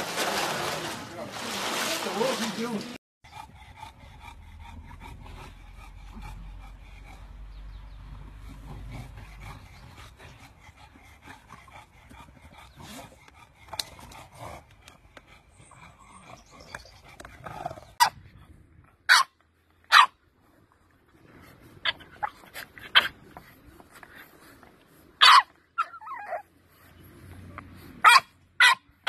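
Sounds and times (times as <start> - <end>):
dogs barking: 19.1 - 20.2, 25.2 - 26.2, 28.0 - 28.9.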